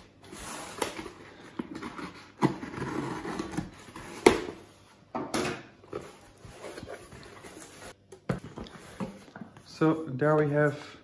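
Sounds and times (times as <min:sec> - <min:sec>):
cardboard and tape scraping: 0:01.8 - 0:04.6.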